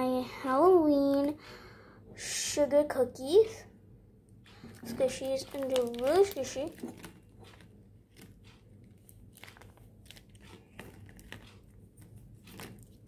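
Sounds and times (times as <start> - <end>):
paper squishy crinkling: 4.6 - 13.0.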